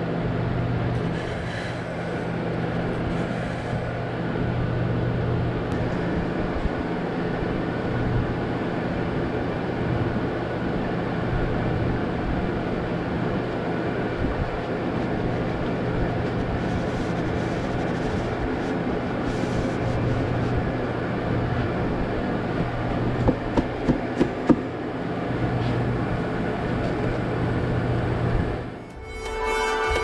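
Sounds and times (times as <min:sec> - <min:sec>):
mechanical drone: 0:27.1 - 0:30.0.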